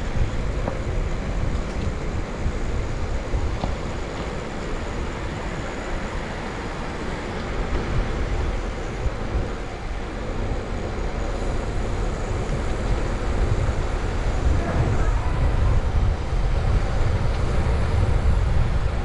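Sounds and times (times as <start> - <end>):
bicycle tyres rolling on street: 0.0 - 19.0
wind buffeting microphone: 0.0 - 19.0.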